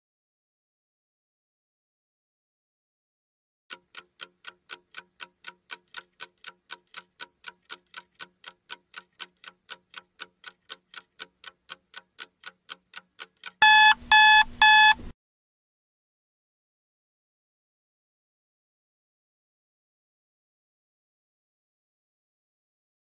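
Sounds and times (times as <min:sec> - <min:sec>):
clock ticking: 0:03.7 - 0:15.1
electronic alarm beeping: 0:13.6 - 0:15.1.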